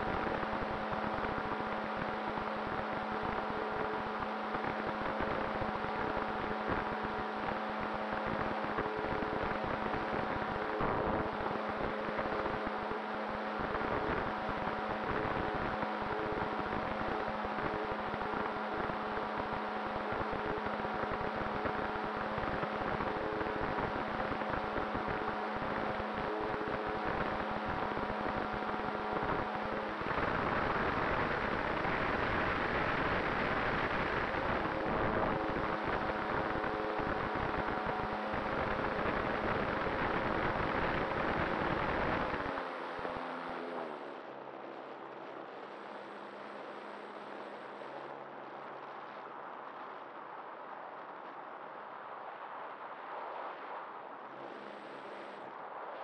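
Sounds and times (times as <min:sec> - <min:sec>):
model glider motor humming: 0:00.0 - 0:44.4.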